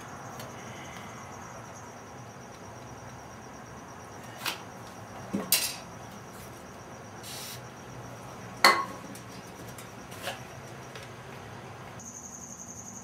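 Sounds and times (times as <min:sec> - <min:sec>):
brief hiss: 0:07.2 - 0:07.6.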